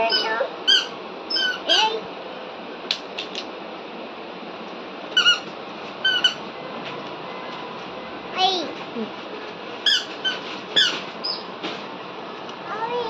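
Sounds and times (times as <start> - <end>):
squeaker squeaking: 0.0 - 2.0, 5.1 - 6.4, 9.8 - 11.5.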